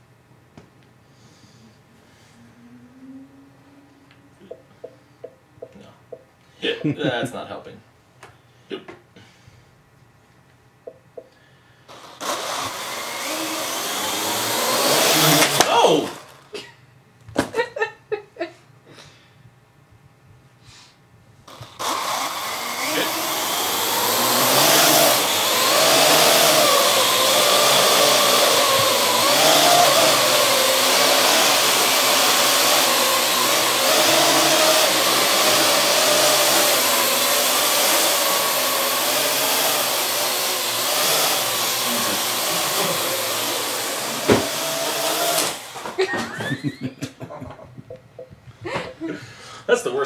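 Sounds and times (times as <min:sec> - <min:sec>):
quadcopter rotors buzzing: 0:11.9 - 0:16.5, 0:21.5 - 0:46.0.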